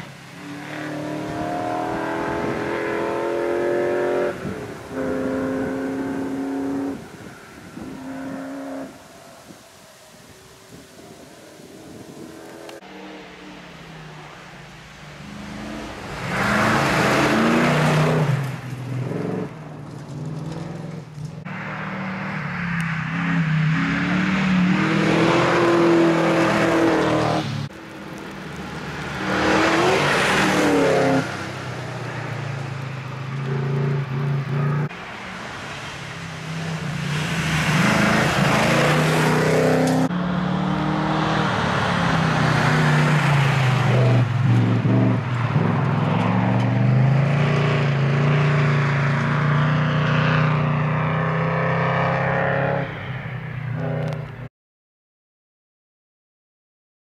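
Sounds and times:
rally car engine revving: 0.0s - 7.0s, 15.2s - 31.6s
tyres hissing on gravel: 27.7s - 31.6s.

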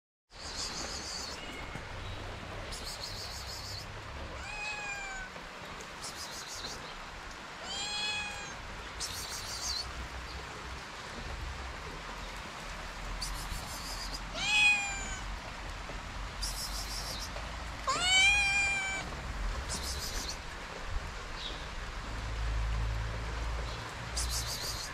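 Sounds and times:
background hiss: 0.3s - 10.8s, 12.2s - 20.6s
kitten meowing: 4.4s - 5.4s, 7.6s - 8.6s, 13.8s - 15.3s, 17.9s - 19.2s.

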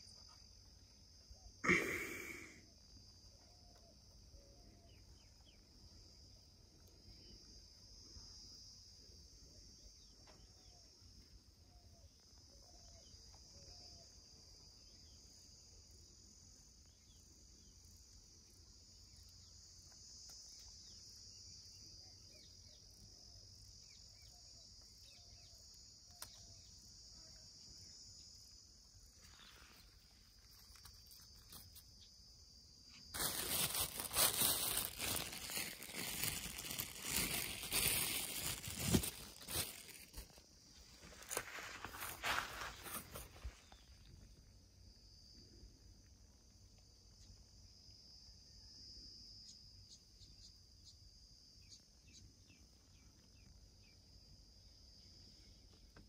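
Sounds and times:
insects calling: 0.0s - 56.0s
grass rustling near microphone: 33.1s - 44.1s.

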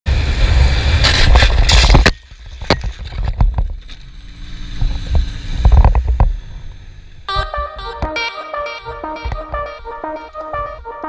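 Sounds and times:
rush of wind: 0.1s - 3.8s
motorcycle scraping: 0.2s - 7.2s.

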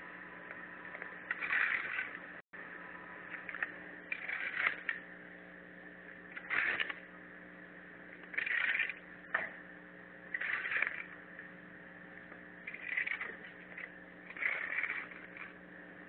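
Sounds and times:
steady low hum: 0.0s - 16.0s
hoe scraping soil on paving: 1.3s - 2.2s, 3.4s - 5.0s, 6.4s - 7.0s, 8.3s - 9.0s, 10.3s - 11.1s, 12.7s - 15.6s.

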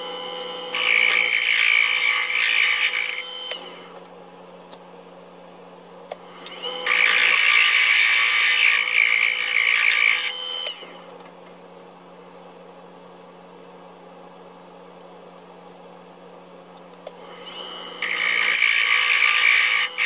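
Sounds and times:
wood lathe motor hum: 0.0s - 4.0s, 6.4s - 11.1s, 17.2s - 20.0s.

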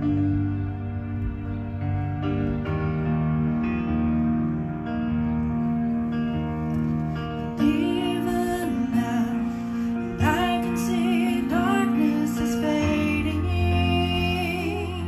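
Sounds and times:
electronic keyboard chords: 0.0s - 15.0s
woman singing with vibrato: 10.2s - 15.0s.

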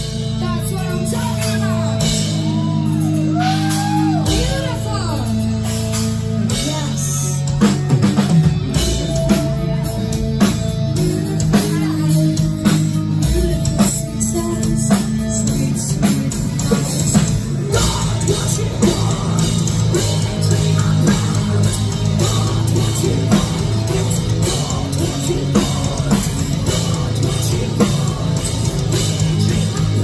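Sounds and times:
heavy metal band playing live: 0.0s - 30.0s.

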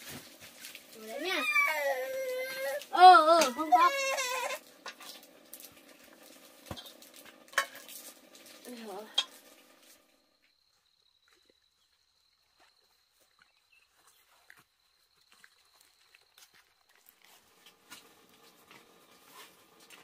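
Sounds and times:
low sizzling: 2.2s - 10.2s
metal pot and utensil clatter: 4.8s - 5.3s, 6.4s - 9.8s.

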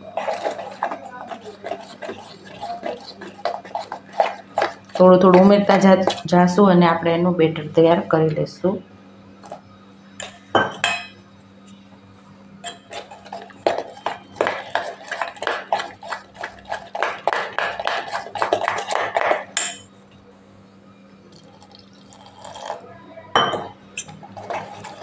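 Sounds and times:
spoon scraping steel bowl: 0.0s - 6.4s, 12.6s - 19.9s, 24.0s - 25.0s.

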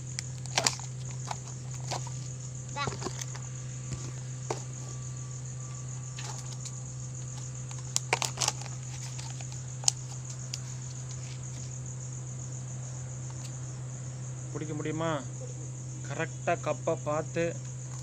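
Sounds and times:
insects chirping: 0.0s - 18.0s.

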